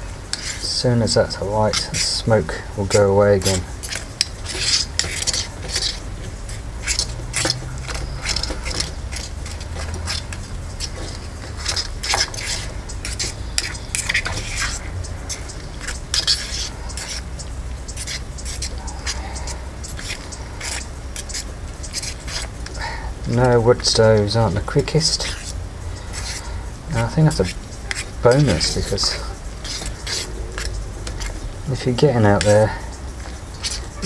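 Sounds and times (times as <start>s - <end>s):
steady low rumble: 0.0s - 34.0s
spoon scraping a cooking pot: 0.3s - 34.0s.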